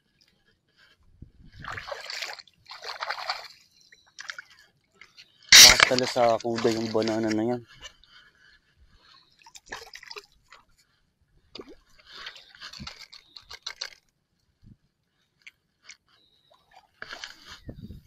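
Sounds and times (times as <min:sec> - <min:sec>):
water splashing and dripping: 0:01.6 - 0:03.6, 0:04.2 - 0:04.6, 0:05.5 - 0:07.4, 0:09.4 - 0:10.6, 0:11.5 - 0:14.0.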